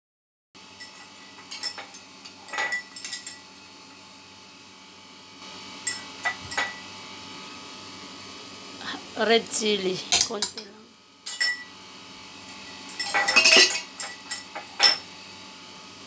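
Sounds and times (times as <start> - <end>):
kitchenware clinking: 0.8 - 3.5, 5.8 - 6.9, 10.1 - 11.8, 12.5 - 15.1.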